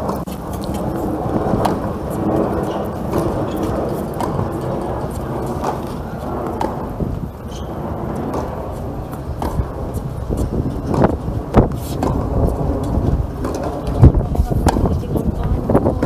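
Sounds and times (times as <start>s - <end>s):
wind on microphone: 0.0s - 16.0s
tennis ball racket strikes: 8.3s - 9.7s.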